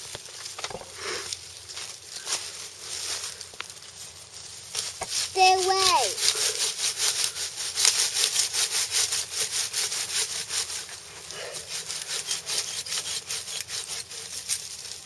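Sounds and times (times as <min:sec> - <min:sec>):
hand saw cutting wood: 0:05.3 - 0:15.0.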